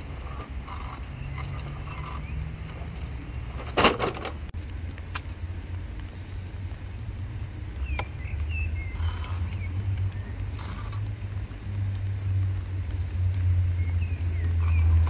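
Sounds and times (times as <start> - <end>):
low steady rumble: 0.0 - 15.0
toy car crashing on wooden boards: 3.6 - 4.4.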